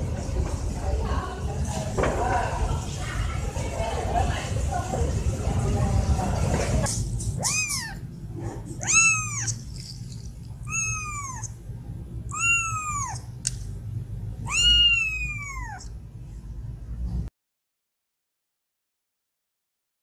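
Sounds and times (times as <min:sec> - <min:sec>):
kitten meowing: 0:07.4 - 0:08.1, 0:08.7 - 0:11.6, 0:12.3 - 0:13.4, 0:14.4 - 0:15.9.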